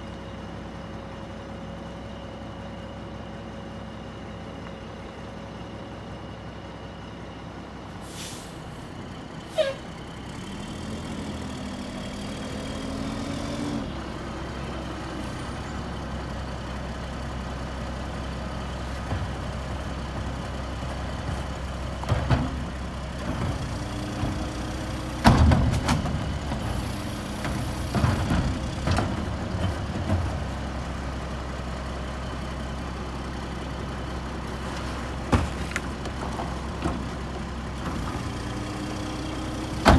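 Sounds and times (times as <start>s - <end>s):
diesel truck engine running: 0.0s - 39.9s
brake squeal: 8.0s - 10.1s
loud bangs and clunks: 21.2s - 30.5s.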